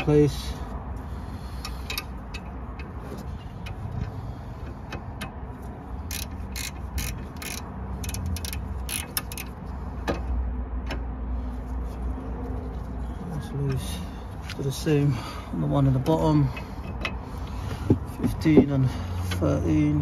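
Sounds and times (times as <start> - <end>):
metal spanners clicking: 6.1 - 9.6.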